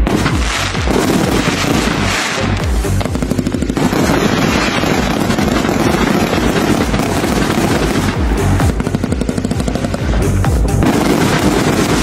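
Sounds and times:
fireworks crackling and popping: 0.0s - 12.0s
low booming: 0.0s - 12.0s.

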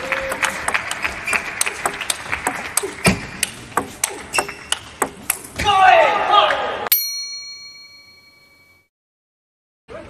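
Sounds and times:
people clapping: 0.0s - 3.8s.

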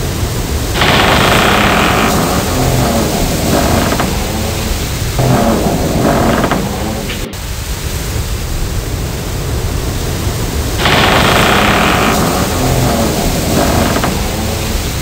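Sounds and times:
loud steady hiss: 0.0s - 15.0s.

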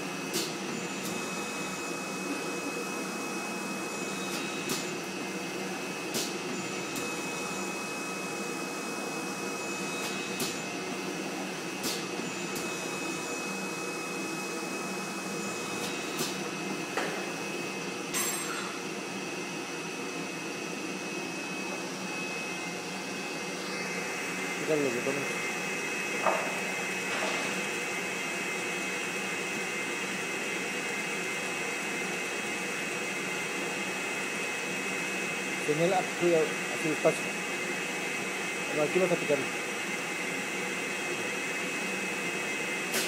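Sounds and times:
machine whirring hum: 0.0s - 43.0s.

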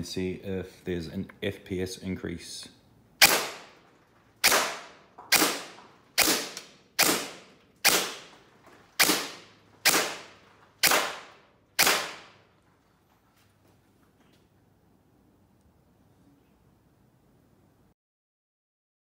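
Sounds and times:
gel blaster shots: 4.4s - 8.2s.

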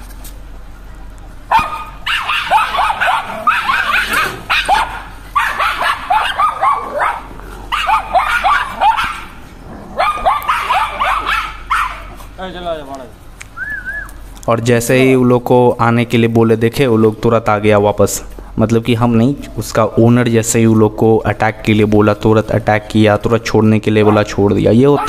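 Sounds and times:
small dogs barking and yapping: 1.5s - 12.4s, 23.8s - 25.0s.

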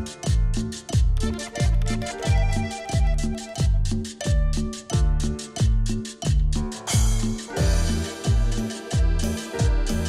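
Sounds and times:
hi-hat cymbal hits: 0.0s - 10.0s
sustained bass notes: 0.0s - 10.0s
kick drum: 0.2s - 10.0s.

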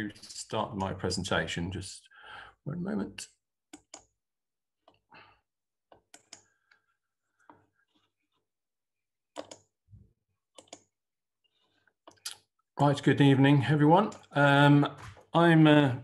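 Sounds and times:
mouse and keyboard clicks: 9.4s - 9.7s, 10.6s - 10.9s.

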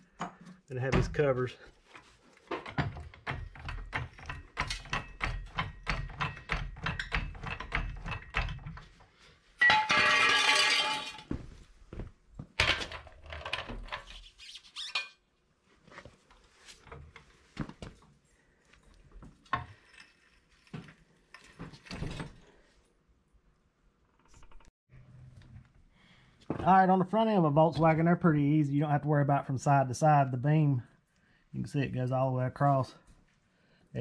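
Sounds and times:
knocks and clatter: 2.5s - 9.0s.

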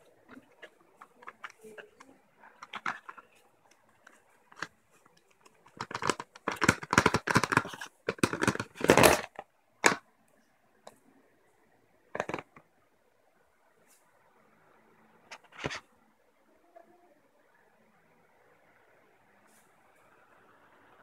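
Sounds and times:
packaging rustling and crinkling: 0.2s - 10.0s.

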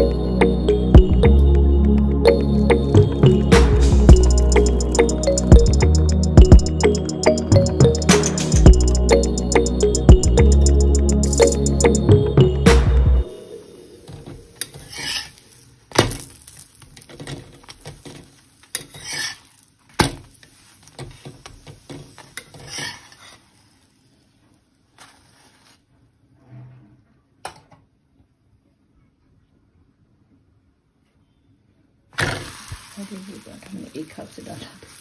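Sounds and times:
light sizzle: 13.3s - 25.9s, 32.2s - 35.0s
spatula clinking and scraping on pan: 14.6s - 15.6s, 17.6s - 19.6s, 20.5s - 23.5s.

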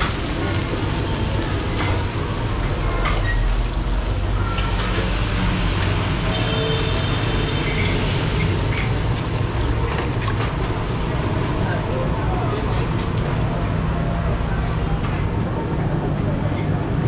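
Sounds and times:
gas burner roar: 0.0s - 17.0s
food sizzling in a wok: 3.5s - 8.7s.

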